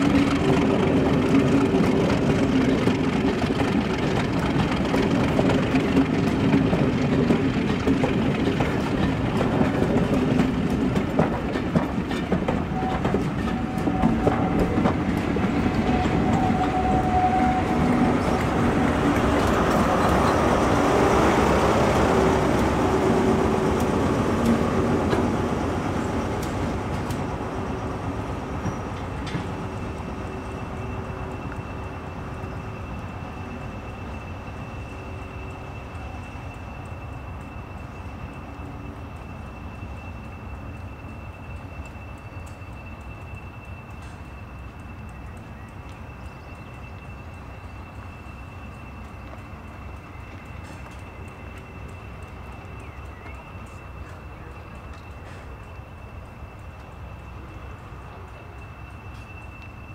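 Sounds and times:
diesel locomotive engine: 0:00.0 - 0:59.9
wheels clicking over rail joints: 0:00.0 - 0:59.9
faint steady high tone: 0:29.6 - 0:59.9.

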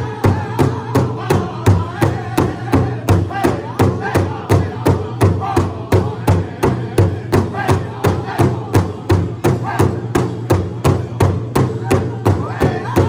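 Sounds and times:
big drum steady beat: 0:00.0 - 0:13.0
group singing: 0:00.0 - 0:13.0.

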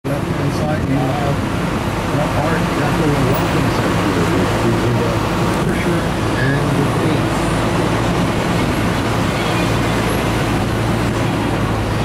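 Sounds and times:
low engine hum: 0:00.0 - 0:12.0
road noise: 0:00.0 - 0:12.0
wind noise: 0:05.2 - 0:12.0.

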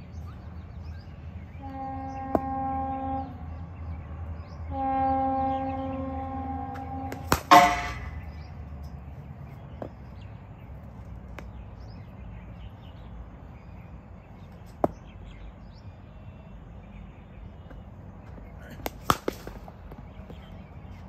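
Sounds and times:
outdoor background: 0:00.0 - 0:21.0
cricket bat striking ball: 0:07.1 - 0:08.2, 0:18.7 - 0:20.0.

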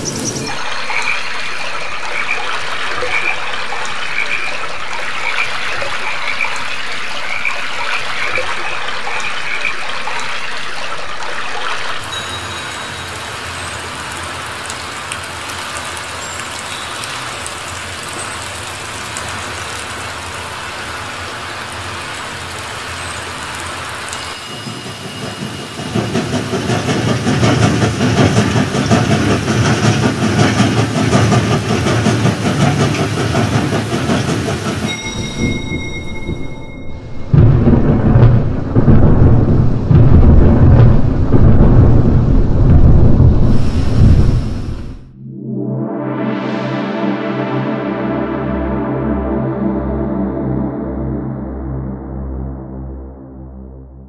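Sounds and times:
small birds chirping: 0:00.0 - 0:01.5
passenger train passing: 0:00.0 - 0:09.6, 0:11.9 - 0:45.1
stream babbling over rocks: 0:00.0 - 0:24.9
rain falling on a puddle: 0:00.0 - 0:36.7, 0:37.3 - 0:45.0.

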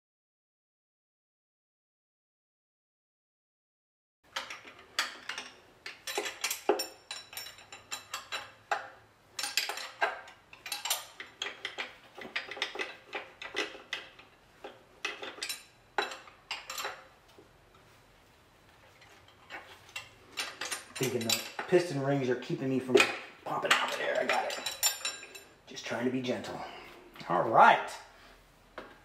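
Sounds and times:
metal tools clinking and clanking: 0:04.3 - 0:17.2, 0:18.9 - 0:27.0.

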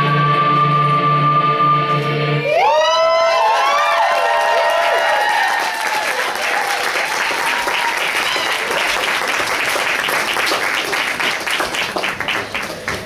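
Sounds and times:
audience applauding: 0:02.7 - 0:13.0.

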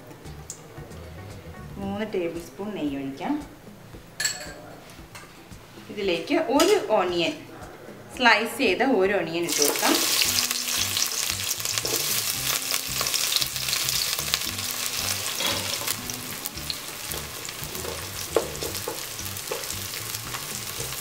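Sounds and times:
onions sizzling in hot fat: 0:09.5 - 0:21.0.

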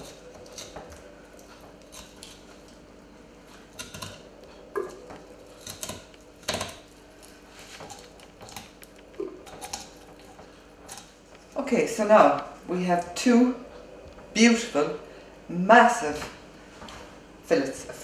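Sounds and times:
knife scraping on bone and board: 0:00.0 - 0:02.8, 0:03.4 - 0:11.2.

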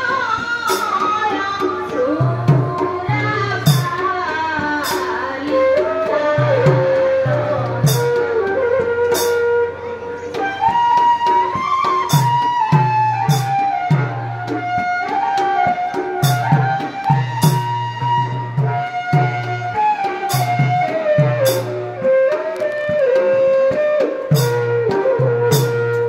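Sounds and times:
woman singing: 0:00.0 - 0:08.2
bamboo flute melody: 0:03.6 - 0:26.0.

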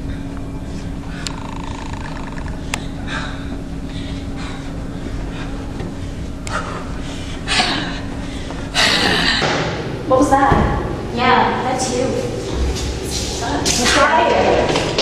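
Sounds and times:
steady low hum: 0:00.0 - 0:15.0
person breathing heavily: 0:02.4 - 0:09.6.

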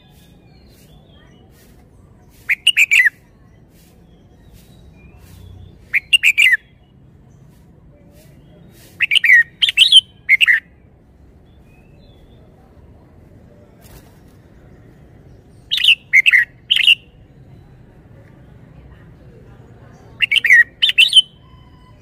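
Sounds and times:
bird singing whistled notes: 0:02.4 - 0:03.3, 0:04.0 - 0:06.8, 0:09.0 - 0:10.7, 0:15.5 - 0:17.8, 0:20.2 - 0:22.0.

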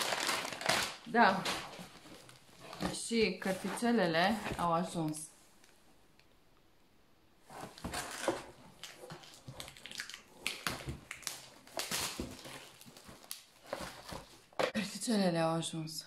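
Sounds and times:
plastic wrapping crinkling: 0:00.0 - 0:04.6, 0:07.5 - 0:14.6
crackles and scrapes: 0:00.0 - 0:05.7, 0:07.4 - 0:14.8.

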